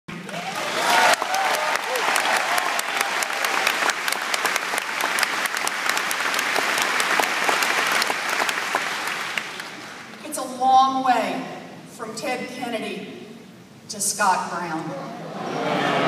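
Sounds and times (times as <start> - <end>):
large crowd applauding: 0.1 - 10.2.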